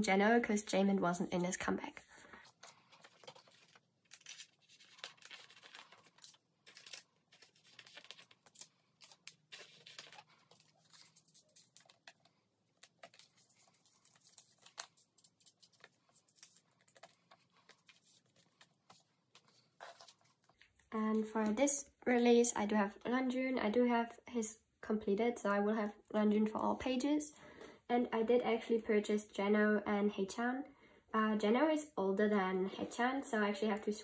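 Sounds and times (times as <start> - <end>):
plastic sleeves crinkling: 1.3 - 21.5.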